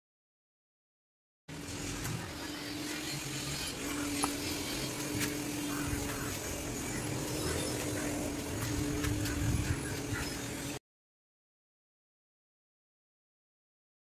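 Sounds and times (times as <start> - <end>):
low steady hum: 1.5 - 10.8.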